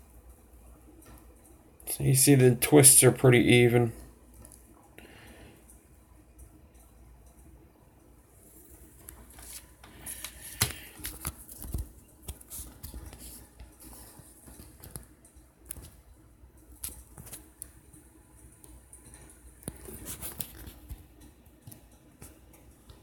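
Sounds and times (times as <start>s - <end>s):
small clicks and taps of tools: 9.0s - 23.0s.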